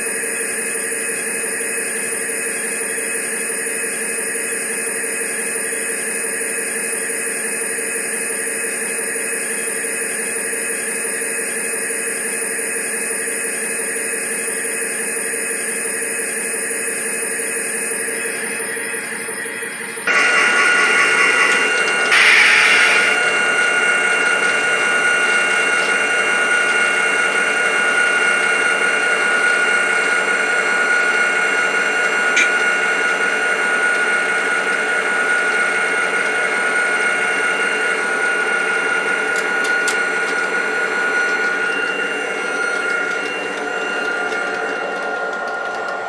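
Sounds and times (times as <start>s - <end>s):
electric motor whine: 16.6s - 46.0s
model train wheels rumbling: 20.1s - 23.2s.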